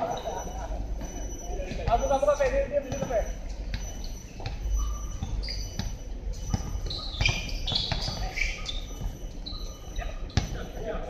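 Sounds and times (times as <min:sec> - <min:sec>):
short high squeaks: 0:00.0 - 0:10.8
basketball bouncing: 0:02.9 - 0:09.3, 0:10.3 - 0:10.7.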